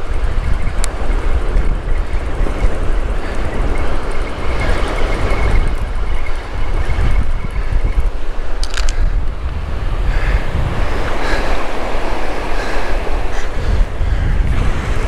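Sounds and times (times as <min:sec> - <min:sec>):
breaking surf: 0:00.0 - 0:15.0
wind buffeting microphone: 0:00.0 - 0:15.0.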